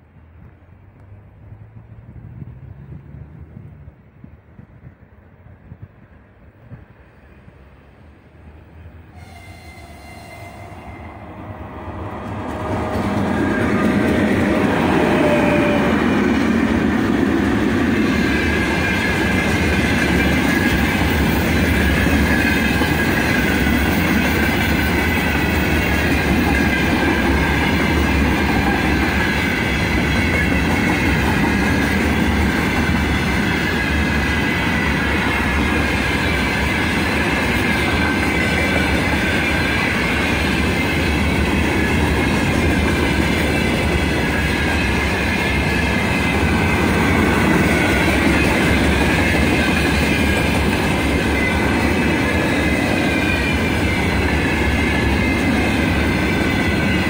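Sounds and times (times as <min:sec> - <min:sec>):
electric locomotive passing: 0:00.0 - 0:57.0.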